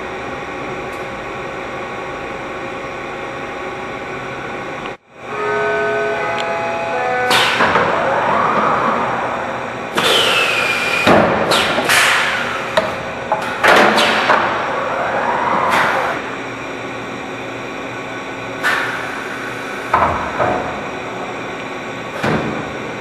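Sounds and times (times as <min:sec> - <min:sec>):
steady machine hum: 0:00.0 - 0:23.0
machine whines sweeping in pitch: 0:05.1 - 0:11.7, 0:14.0 - 0:16.8.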